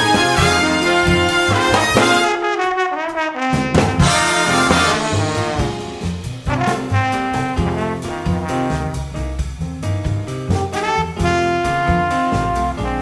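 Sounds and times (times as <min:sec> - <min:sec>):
jazzy brass music with drums: 0:00.0 - 0:13.0.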